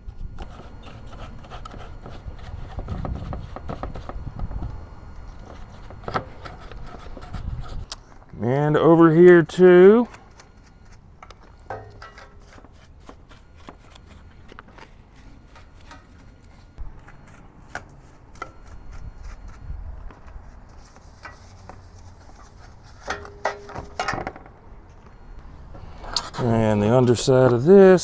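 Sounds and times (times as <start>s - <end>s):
paintbrush scrubbing on metal: 20.5s - 24.0s.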